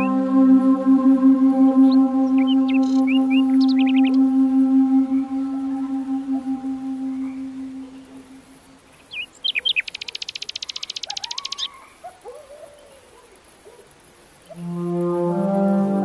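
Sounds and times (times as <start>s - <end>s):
low wavering whistles: 0.0s - 9.2s, 14.5s - 16.0s
bird chirps and trill: 0.0s - 12.0s.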